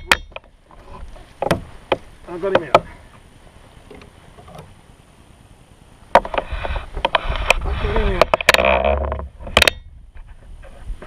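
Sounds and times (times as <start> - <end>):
sharp knocks and clatter: 0.0 - 3.0.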